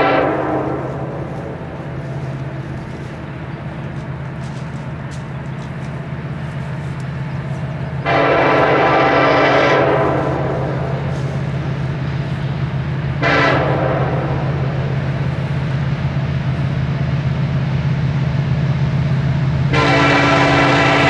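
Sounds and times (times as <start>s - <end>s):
locomotive air horn: 0.0s - 3.3s, 3.9s - 15.9s, 19.5s - 21.0s
locomotive engine drone: 0.0s - 21.0s.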